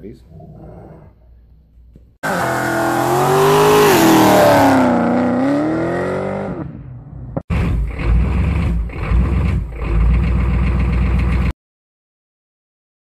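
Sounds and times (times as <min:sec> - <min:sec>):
car engine revving: 0:02.2 - 0:11.0
truck engine idling: 0:07.6 - 0:11.5.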